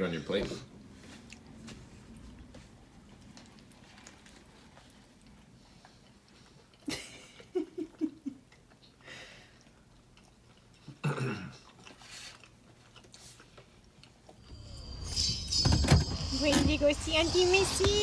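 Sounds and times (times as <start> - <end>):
child humming: 14.5 - 18.0
sudden sharp noise: 14.5 - 18.0.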